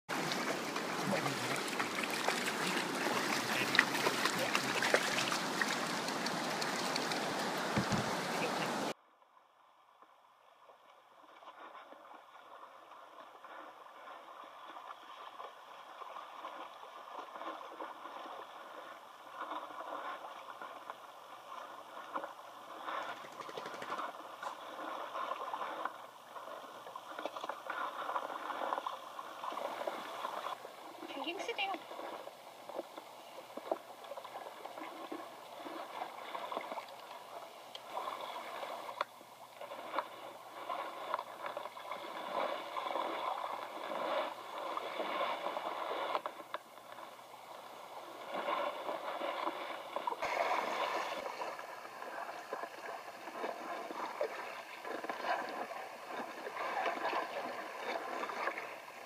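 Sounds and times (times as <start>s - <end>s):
river water rushing: 0.1s - 8.9s
paddle splashes: 0.1s - 9.0s, 10.5s - 59.0s
muffled water sounds: 0.1s - 59.0s.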